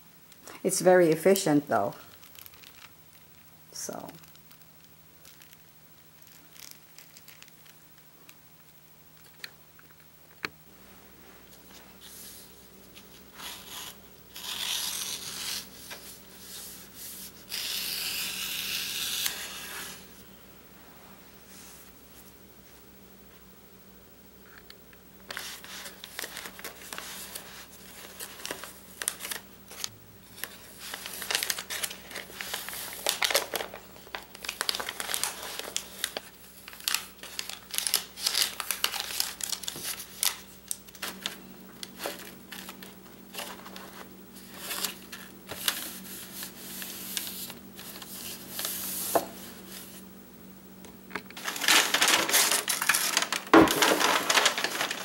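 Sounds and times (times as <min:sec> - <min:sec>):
paper and plastic film rustling: 0:01.3 - 0:07.8, 0:25.3 - 0:50.0, 0:51.4 - 0:55.0.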